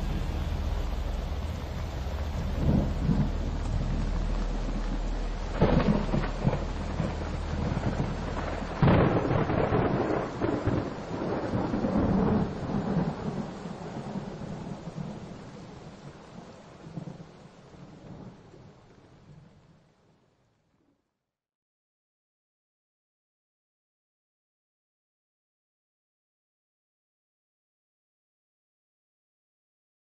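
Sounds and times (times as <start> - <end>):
thunder crack: 0.0 - 18.6
rolling thunder: 0.0 - 19.8
steady rain: 0.0 - 20.9.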